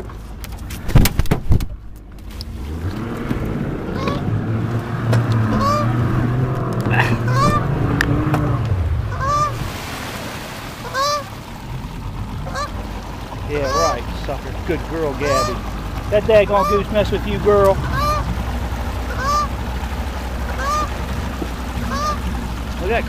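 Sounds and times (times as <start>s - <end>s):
outboard motor humming: 0.0s - 23.0s
goose honking: 3.9s - 4.3s, 5.5s - 6.0s, 7.0s - 7.7s, 9.1s - 9.6s, 10.8s - 11.4s, 12.4s - 12.9s, 13.5s - 14.1s, 15.1s - 18.4s, 19.0s - 19.6s, 20.4s - 22.3s.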